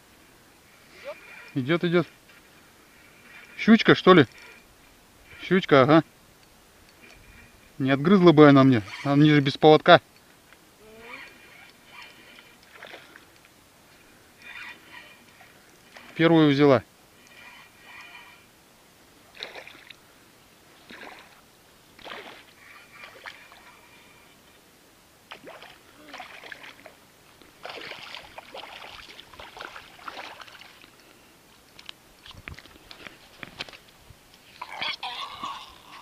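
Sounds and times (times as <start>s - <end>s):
fish splashing in water: 19.3s - 20.0s, 20.9s - 21.4s, 22.0s - 23.7s, 25.3s - 27.0s, 27.6s - 30.9s.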